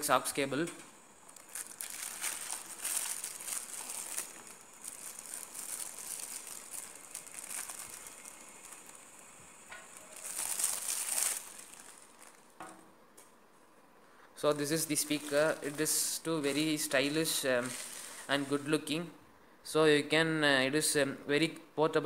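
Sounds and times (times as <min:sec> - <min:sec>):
plastic packaging crinkling: 0:01.0 - 0:12.6, 0:14.4 - 0:18.7.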